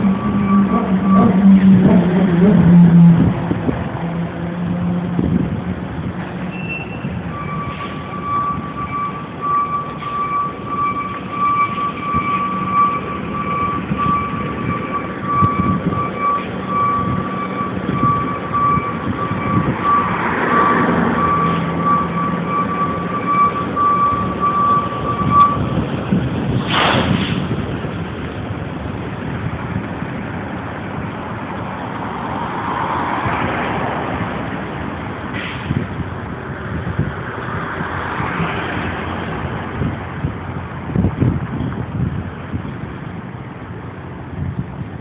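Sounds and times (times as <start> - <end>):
diesel engine humming: 0.0 - 26.7, 27.4 - 33.0
high-pitched electronic beeping alarm: 6.7 - 25.8.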